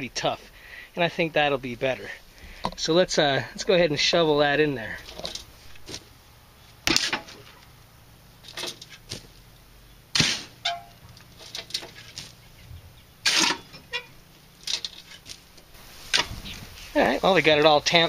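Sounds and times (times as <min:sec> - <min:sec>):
shovel crunching gravel: 0:04.8 - 0:07.6, 0:08.4 - 0:09.4, 0:10.1 - 0:12.5, 0:13.2 - 0:18.0.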